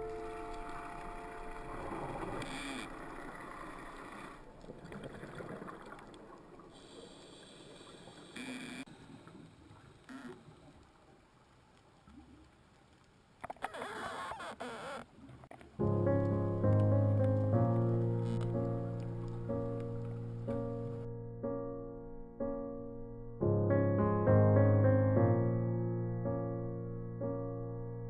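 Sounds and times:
underwater bubbling: 0:00.0 - 0:13.9, 0:15.1 - 0:21.0.

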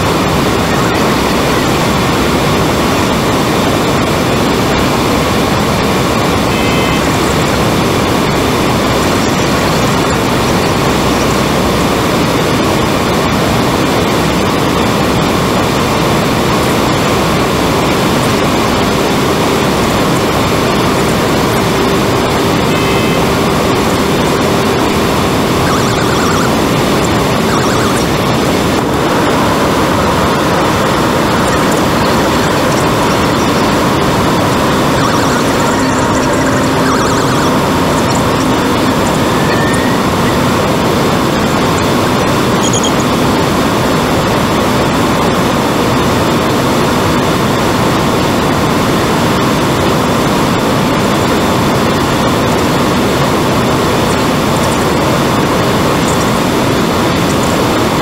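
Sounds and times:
turboprop engines droning: 0:00.0 - 0:58.0
short high beeps: 0:06.5 - 0:07.6, 0:22.7 - 0:23.5, 0:34.8 - 0:40.6, 0:42.6 - 0:43.2.

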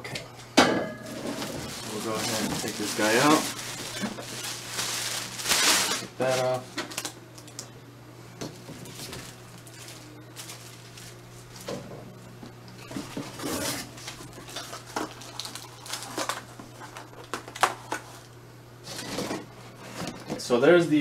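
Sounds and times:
cardboard rustling and scraping: 0:01.1 - 0:06.6, 0:12.9 - 0:16.6.

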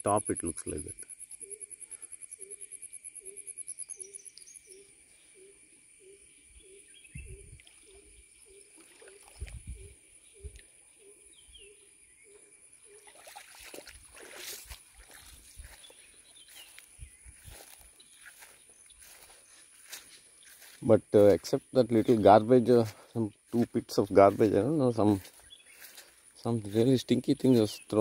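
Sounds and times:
low repeated animal call: 0:01.4 - 0:13.1
footsteps through grass: 0:13.1 - 0:28.0.

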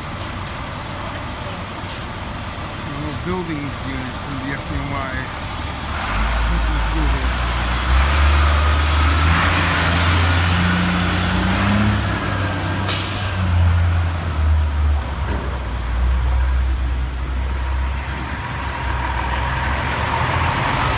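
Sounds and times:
diesel truck engine accelerating: 0:00.0 - 0:20.9
air brake hiss: 0:12.9 - 0:13.5.

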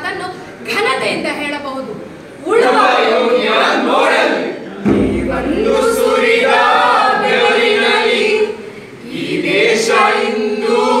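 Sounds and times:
group singing in unison: 0:02.4 - 0:11.0.

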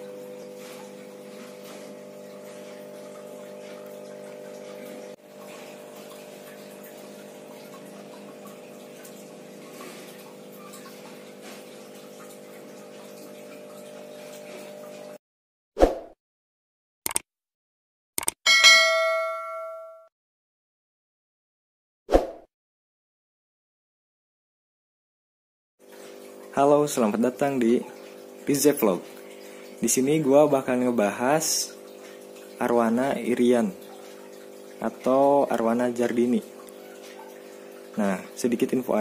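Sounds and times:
aquarium pump humming: 0:00.0 - 0:15.2, 0:25.8 - 0:39.0.

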